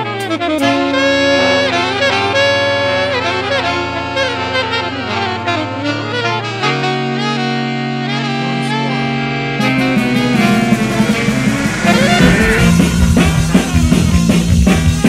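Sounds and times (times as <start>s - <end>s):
sliding lead melody: 9.0s - 14.8s
held bass notes: 9.6s - 15.0s.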